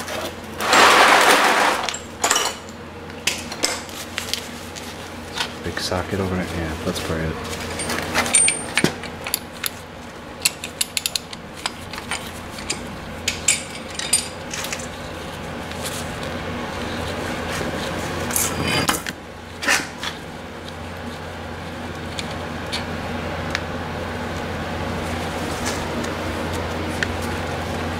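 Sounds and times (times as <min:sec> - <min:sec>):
scraping rustles: 0:00.0 - 0:02.1.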